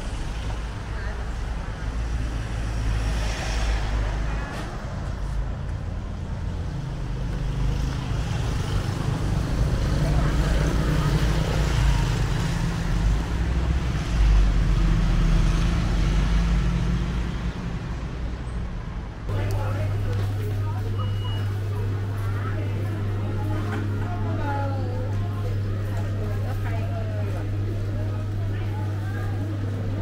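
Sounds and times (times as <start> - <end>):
passing vehicle engines rumbling: 0.0 - 30.0
faint voices: 7.6 - 14.1, 19.3 - 30.0.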